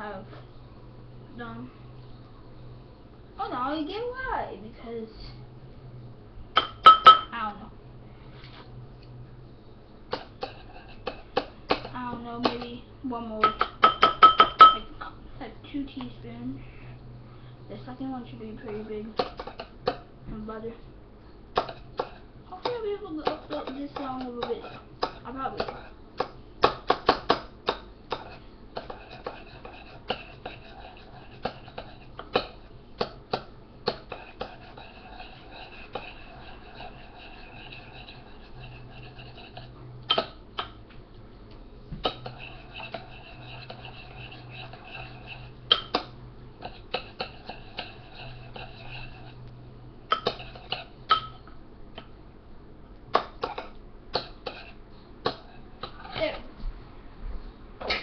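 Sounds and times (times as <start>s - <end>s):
steady low hum: 0.0s - 58.0s
utensil tapping and scraping dish: 6.6s - 7.3s, 10.1s - 12.8s, 13.4s - 14.9s, 18.6s - 20.1s, 21.6s - 40.8s, 42.0s - 52.1s, 53.2s - 56.4s.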